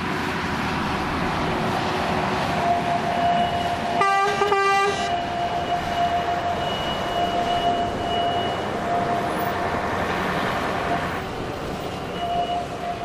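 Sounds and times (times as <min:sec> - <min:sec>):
diesel locomotives rumbling past: 0:00.0 - 0:13.0
locomotive horn blasts: 0:03.8 - 0:05.2.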